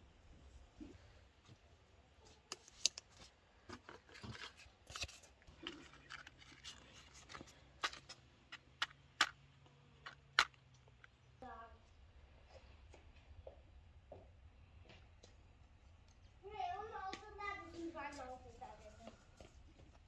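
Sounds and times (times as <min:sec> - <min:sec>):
wood rustling: 0:03.1 - 0:09.3.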